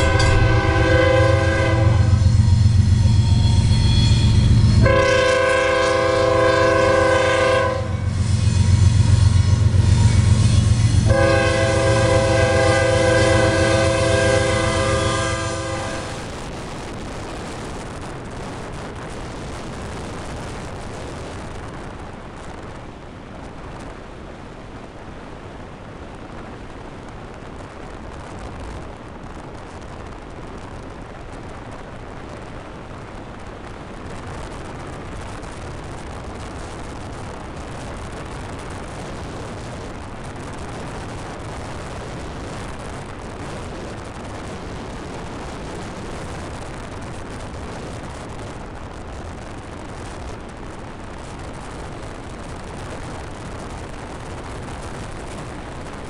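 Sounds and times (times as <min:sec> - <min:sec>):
train air horn chord: 0:00.0 - 0:16.3
rushing noise of moving train: 0:00.0 - 0:56.0.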